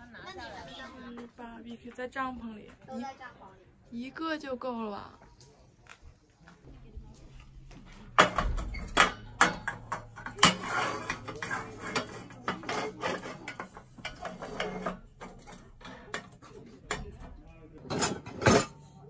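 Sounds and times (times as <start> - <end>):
metal grill plate clanking: 8.2 - 19.0.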